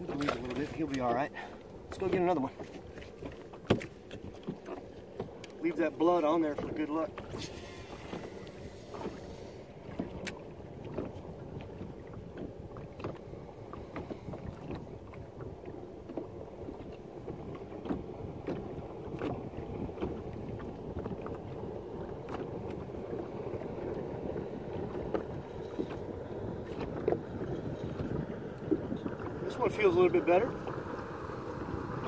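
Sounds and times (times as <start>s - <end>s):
waves lapping against boat hull: 0.0s - 32.0s
light ticks: 5.2s - 5.6s
wind on microphone: 6.4s - 32.0s.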